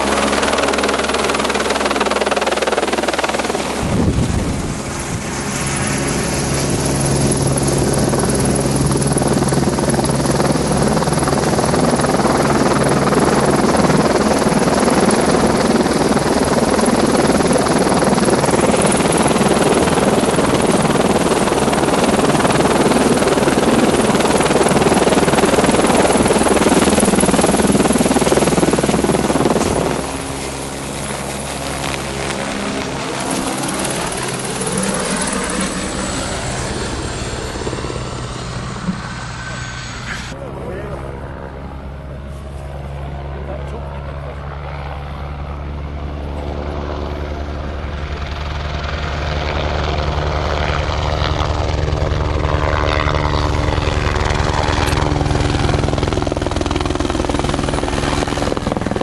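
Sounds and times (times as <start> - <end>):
helicopter rotor and engine: 0.0 - 59.0.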